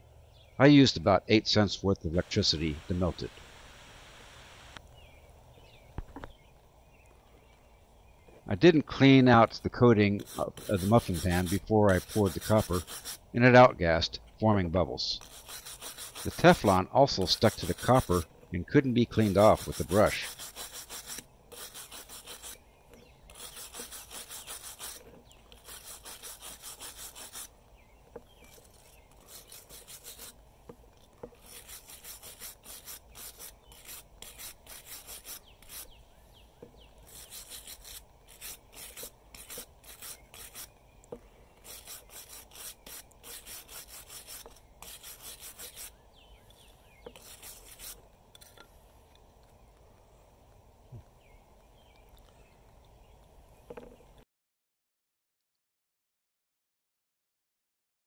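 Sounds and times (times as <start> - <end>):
wire brush scraping metal: 10.1 - 13.2, 15.2 - 18.3, 19.1 - 22.6, 23.3 - 27.5, 28.4 - 30.4, 31.0 - 36.0, 37.0 - 40.7, 41.6 - 45.9, 47.1 - 48.6.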